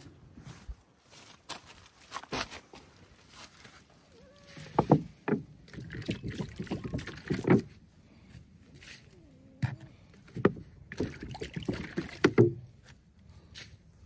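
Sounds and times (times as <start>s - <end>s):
water splashing and sloshing: 4.6s - 7.8s, 10.1s - 12.8s.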